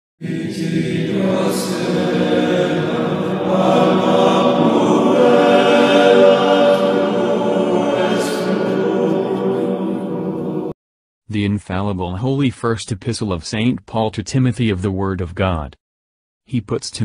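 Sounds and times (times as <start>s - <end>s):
choral chant: 0.2s - 10.8s.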